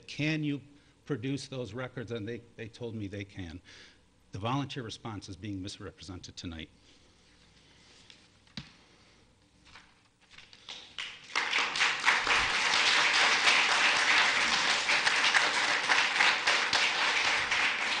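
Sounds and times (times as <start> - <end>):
audience applauding: 10.7 - 18.0.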